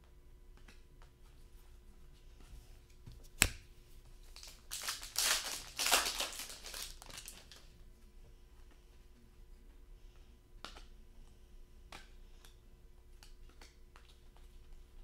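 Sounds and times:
foil wrapper crinkling: 4.2 - 7.7.

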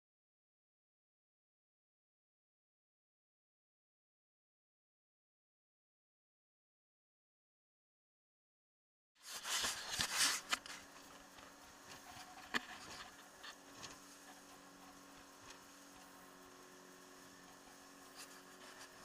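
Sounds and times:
camera handling rubbing and knocks: 9.3 - 10.8, 12.2 - 13.9.

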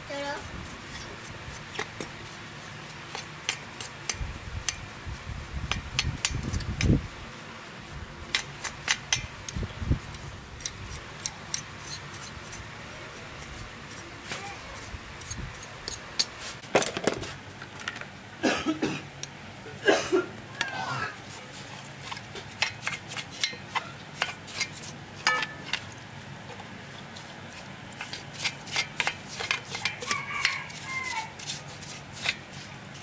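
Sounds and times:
brush scrubbing metal: 0.1 - 16.6, 21.2 - 33.0
bristles ticking against metal: 8.3 - 12.2.

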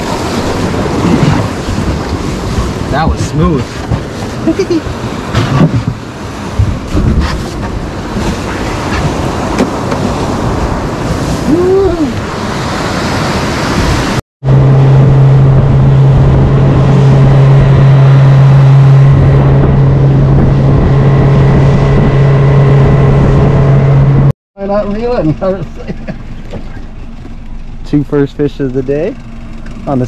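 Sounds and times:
outboard motor running: 0.0 - 12.1, 13.8 - 30.0
wind buffeting microphone: 0.0 - 24.3
surf rushing: 0.0 - 27.2.

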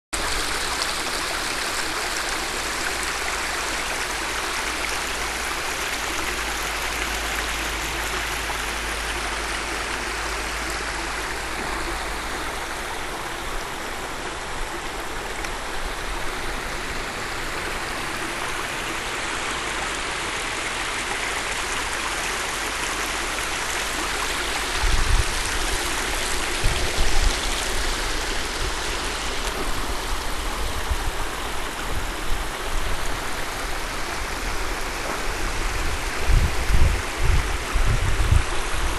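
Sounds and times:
water rushing over rocks: 0.2 - 38.9.

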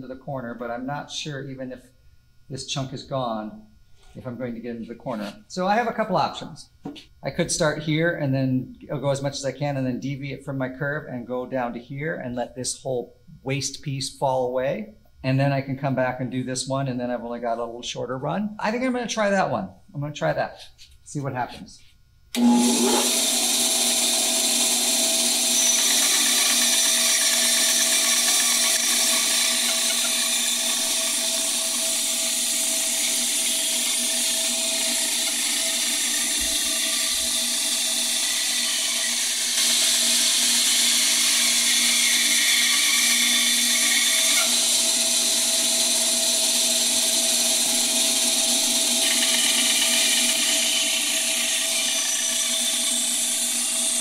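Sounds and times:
band saw motor hum: 22.3 - 54.0
saw blade cutting wood: 22.4 - 54.0.

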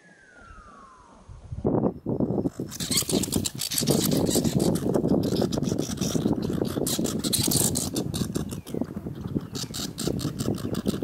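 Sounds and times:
squirrels scuffling: 2.4 - 11.0.

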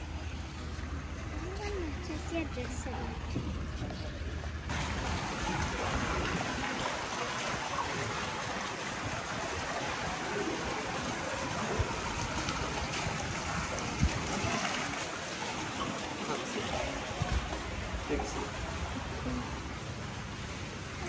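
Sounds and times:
water trickling: 0.0 - 21.0.

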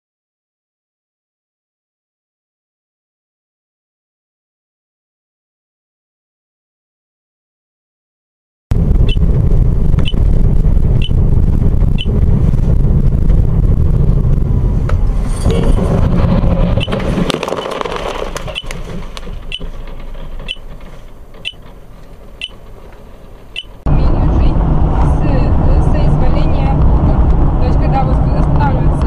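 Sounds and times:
low vehicle rumble: 8.7 - 29.0
short high beeps: 23.6 - 23.8.

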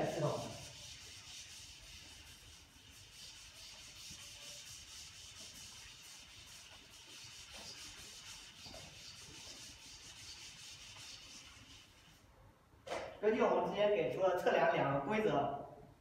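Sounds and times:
eraser rubbing on chalkboard: 0.0 - 12.2.

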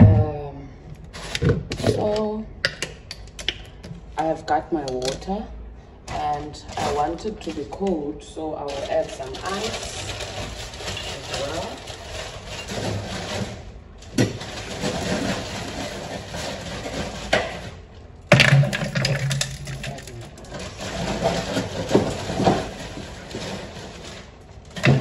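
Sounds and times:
ice cubes clinking in a jug: 8.7 - 13.0, 18.4 - 23.8.

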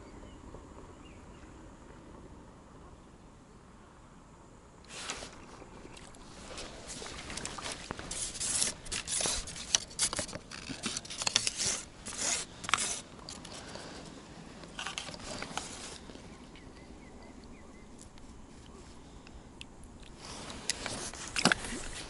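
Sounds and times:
clothing and hands rustling: 4.9 - 16.3, 20.2 - 22.0.

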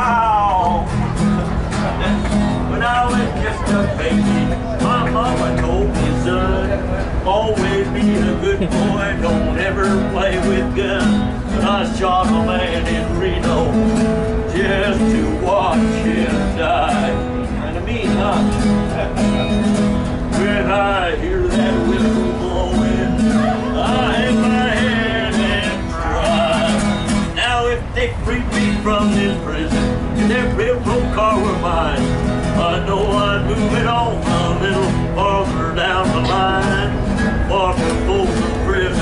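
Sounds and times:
acoustic guitar playing: 0.0 - 39.0
person singing: 20.4 - 31.9.

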